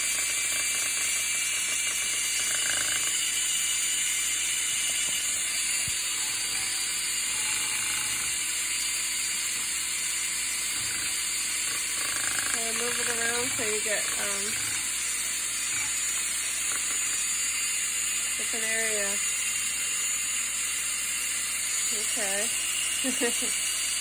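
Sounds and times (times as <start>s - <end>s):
cordless drill running: 0.0s - 24.0s.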